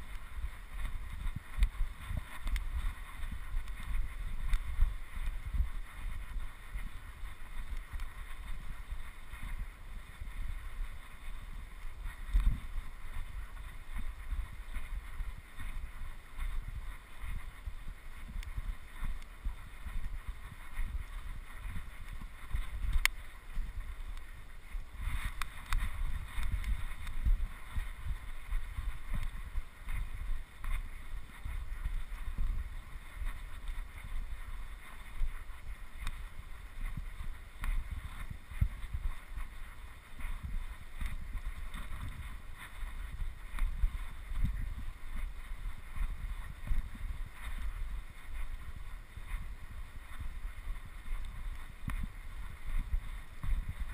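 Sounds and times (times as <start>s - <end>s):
faint clicks and rustles: 0.0s - 53.9s
wind rumbling on microphone: 0.0s - 53.9s.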